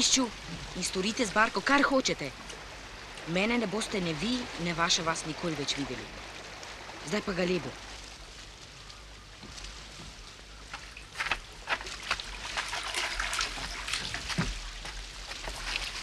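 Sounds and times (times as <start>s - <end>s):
small waves washing: 0.0s - 16.0s
footsteps splashing in water: 7.8s - 16.0s
footsteps crunching on pebbles: 8.1s - 16.0s.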